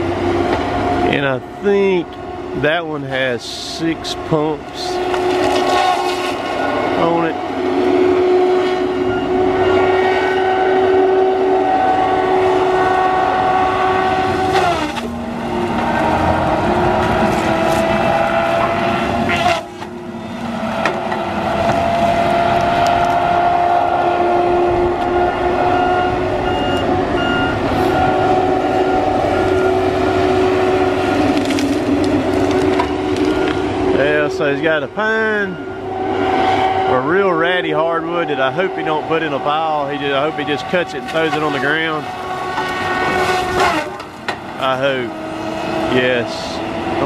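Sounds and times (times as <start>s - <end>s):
diesel engine and hydraulics whine: 0.0s - 47.0s
wood cracking: 31.2s - 33.6s.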